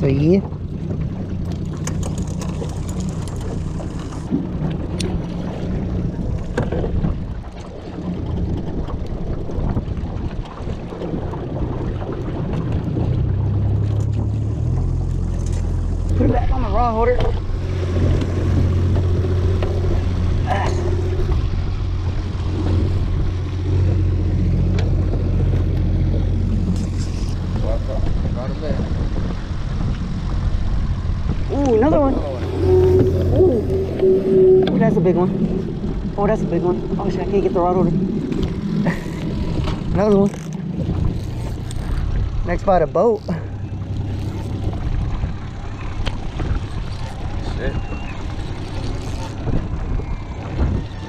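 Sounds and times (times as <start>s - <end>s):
boat motor humming: 0.0s - 51.0s
water noise: 0.0s - 51.0s
wind: 0.0s - 51.0s
gear clicking and knocking: 39.2s - 42.1s.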